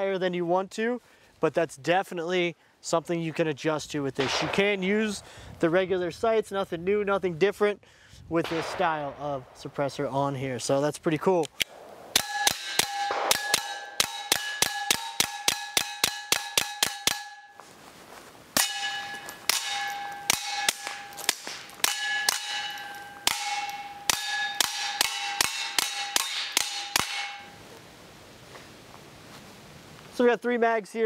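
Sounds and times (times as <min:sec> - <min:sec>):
suppressed pistol shots: 0:04.2 - 0:04.8, 0:08.4 - 0:09.7, 0:11.6 - 0:17.2
steady ringing tone: 0:18.6 - 0:27.6.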